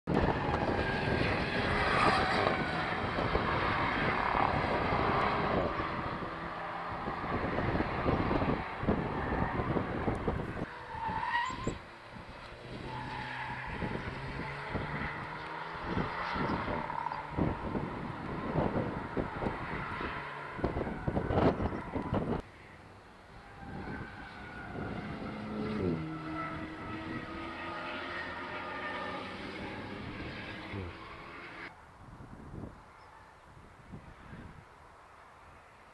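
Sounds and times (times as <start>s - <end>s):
car engine revving on race track: 0.1s - 31.8s.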